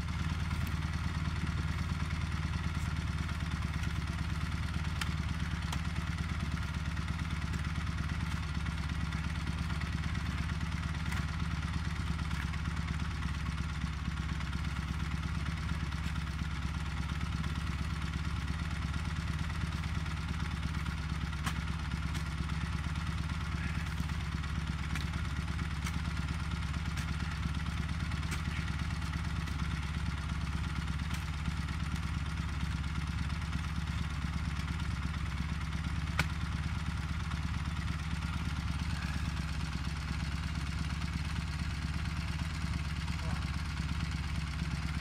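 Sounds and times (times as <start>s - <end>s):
motorcycle engine idling: 0.0s - 45.0s.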